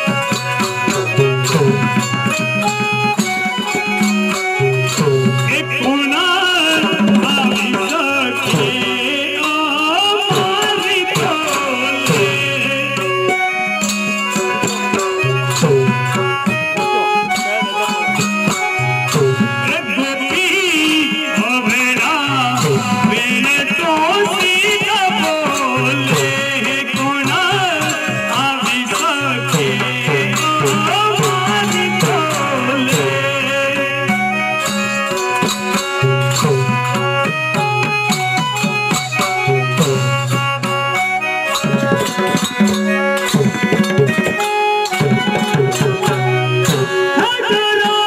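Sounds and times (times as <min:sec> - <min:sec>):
steady drum beat: 0:00.0 - 0:48.0
ornamented wavering melody: 0:25.7 - 0:47.4.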